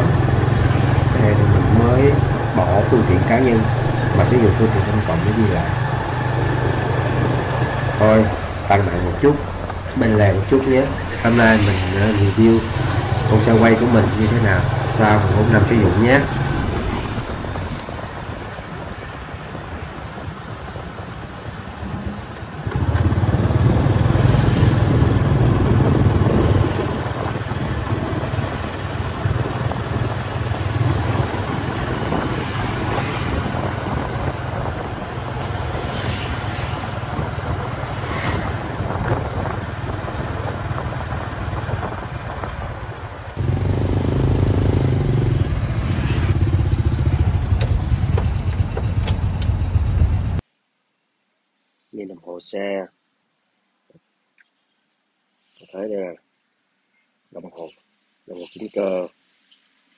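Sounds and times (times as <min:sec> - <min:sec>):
motorbike engine running: 0:00.0 - 0:17.8, 0:22.6 - 0:35.8, 0:43.4 - 0:50.4.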